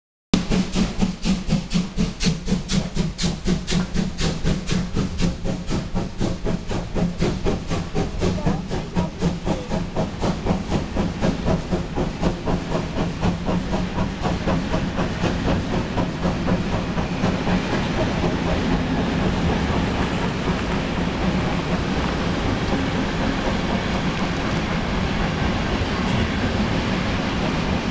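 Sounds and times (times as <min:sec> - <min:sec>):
steam locomotive exhaust beats: 0:00.4 - 0:27.9
coaches rolling over bridge: 0:06.8 - 0:27.9
low drone: 0:15.4 - 0:27.9.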